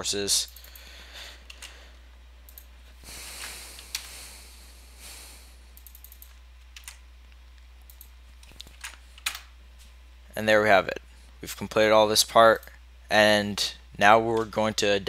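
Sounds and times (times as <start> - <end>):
steady low hum: 0.0 - 15.0
keyboard keystrokes and clicks: 5.8 - 7.0, 7.6 - 9.5.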